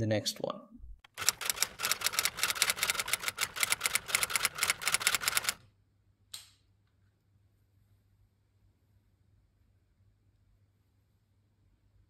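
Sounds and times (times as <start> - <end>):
typewriter key clacks: 1.1 - 5.6.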